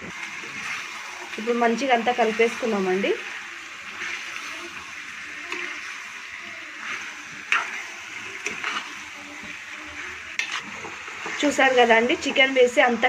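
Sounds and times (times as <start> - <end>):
food sizzling in oil: 0.0 - 13.0
metal spoon scraping a pan: 6.8 - 12.7.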